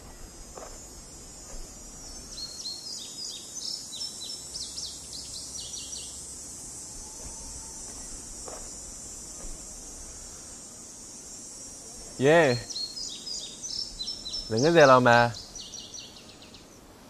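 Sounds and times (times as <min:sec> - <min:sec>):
small bird chirping: 0:00.0 - 0:06.2, 0:12.5 - 0:16.8
cicadas droning: 0:00.0 - 0:17.0.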